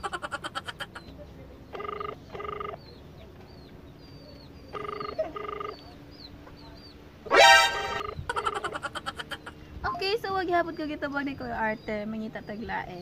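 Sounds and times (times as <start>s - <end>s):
telephone ringback tone: 1.8s - 2.8s, 4.8s - 5.8s.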